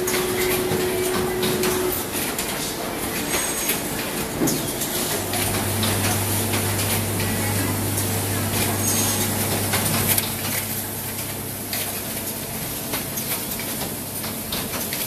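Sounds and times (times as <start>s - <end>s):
machinery hissing: 4.9s - 10.2s.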